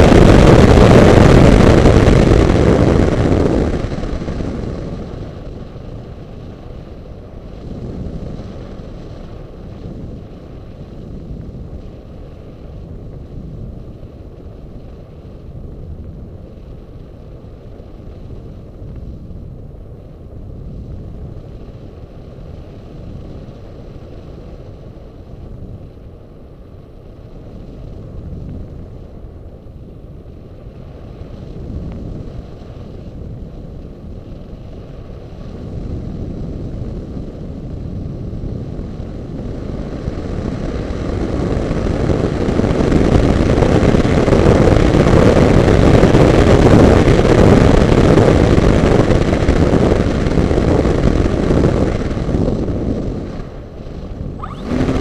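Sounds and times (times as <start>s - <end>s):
faint steady whine: 53.4s - 55.0s
air rushing over microphone: 54.2s - 55.0s.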